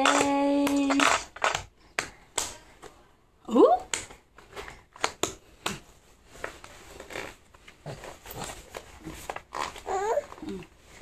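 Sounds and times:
rustling: 4.4 - 11.0.

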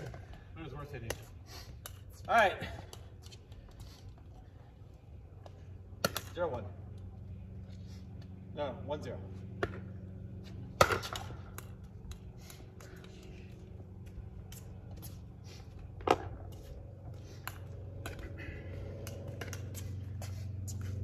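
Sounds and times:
steady low hum: 0.0 - 21.0
pickleball pop: 10.8 - 11.7
footsteps and shoe scuffs: 12.4 - 17.9, 19.2 - 21.0.

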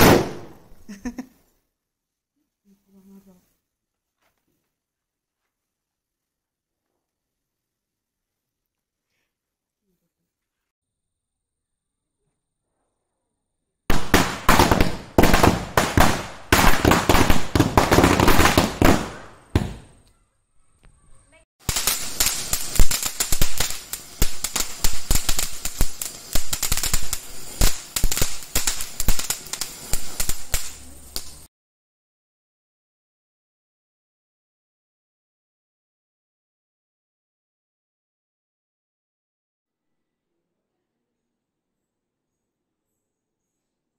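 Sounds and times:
firecrackers crackling: 13.9 - 20.0, 21.6 - 31.5.

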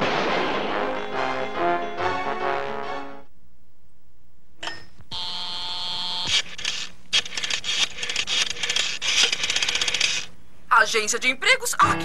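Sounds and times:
buzzing dial tone: 5.1 - 6.3.

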